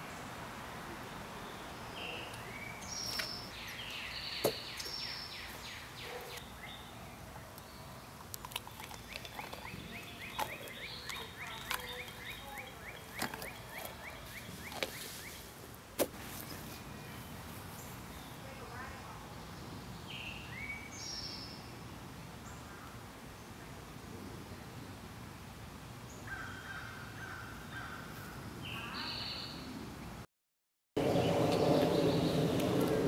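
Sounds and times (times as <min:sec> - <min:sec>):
birds singing: 0:01.0 - 0:15.6, 0:16.4 - 0:21.8, 0:26.1 - 0:29.8, 0:31.0 - 0:33.0.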